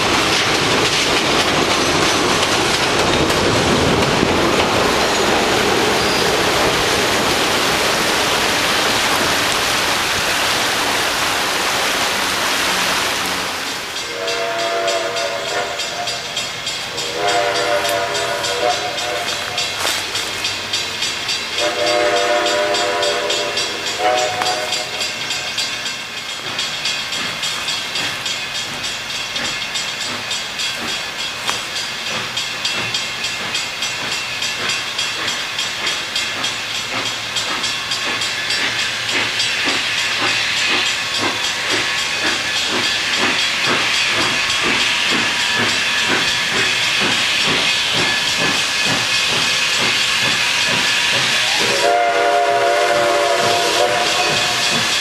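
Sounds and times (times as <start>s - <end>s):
hissing steam: 0.0s - 55.0s
steam locomotive whistle: 12.5s - 20.5s, 21.5s - 25.6s, 49.3s - 55.0s.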